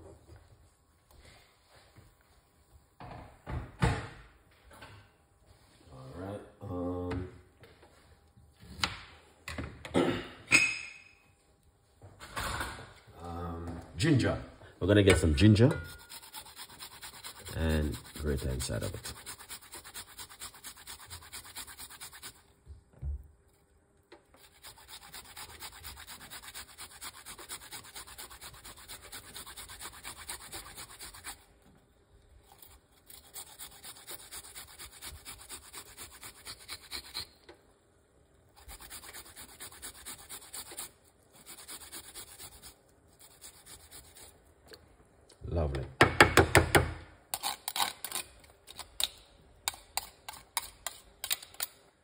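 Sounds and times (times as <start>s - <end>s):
ginger rasping on a metal grater: 15.9s - 22.4s, 24.4s - 31.4s, 32.5s - 37.3s, 38.6s - 44.3s.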